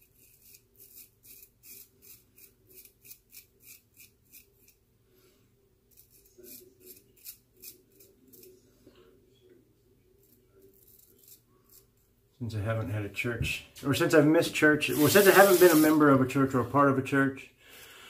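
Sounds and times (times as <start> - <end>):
razor scraping through lather: 0.0 - 4.8, 5.9 - 8.6, 10.2 - 11.9, 14.9 - 16.0.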